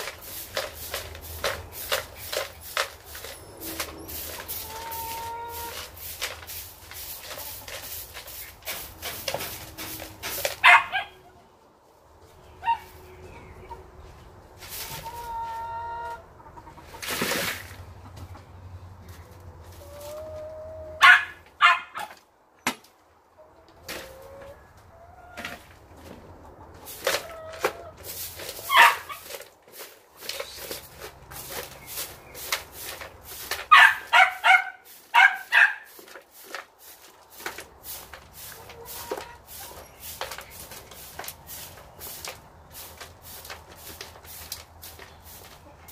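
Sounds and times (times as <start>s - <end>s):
broom sweeping dirt floor: 0.0s - 11.2s, 12.3s - 16.2s, 16.8s - 18.0s, 19.0s - 22.2s, 25.4s - 45.9s
hens clucking: 0.0s - 22.2s, 23.1s - 45.9s
bark-like animal call: 10.6s - 11.2s, 21.0s - 22.1s, 33.7s - 35.9s.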